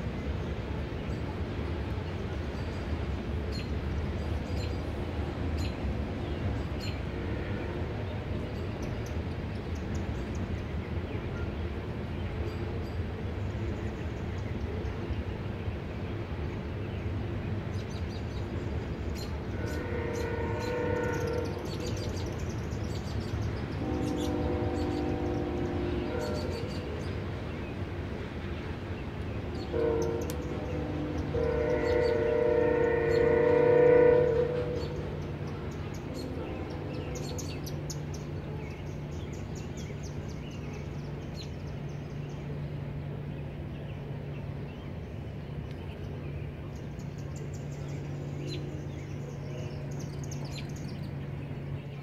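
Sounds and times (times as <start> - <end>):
freight train cars rumbling: 0.0 - 52.0
multi-tone train horn: 5.2 - 8.6, 19.2 - 22.7, 23.4 - 27.4, 29.4 - 40.2.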